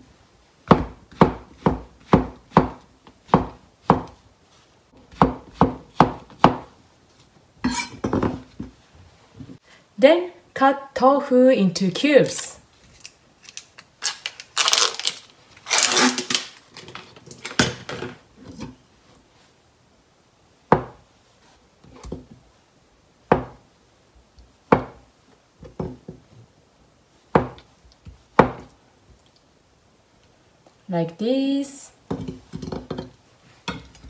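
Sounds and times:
plastic film crackling: 12.9 - 16.9.

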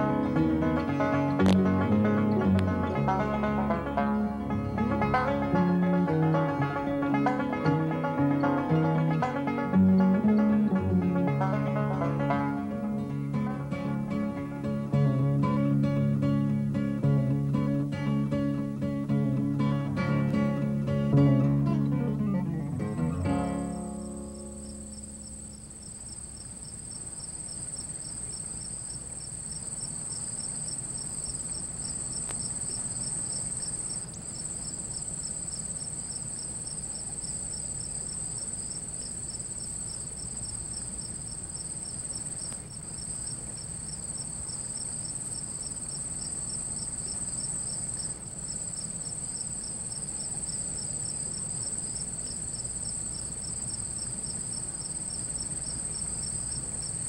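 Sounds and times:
pulsed cricket chirping: 22.6 - 57.0
crickets trilling: 22.9 - 57.0.

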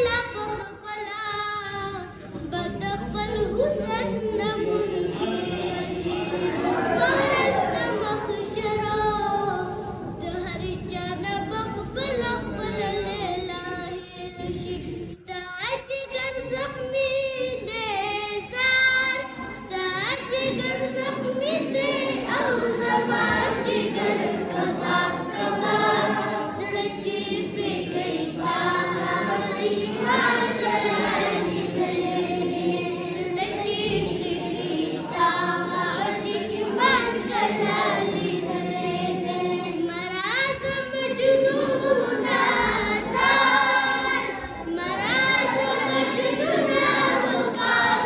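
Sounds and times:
boy singing into a microphone: 0.0 - 25.4, 26.4 - 27.7, 39.5 - 48.0.

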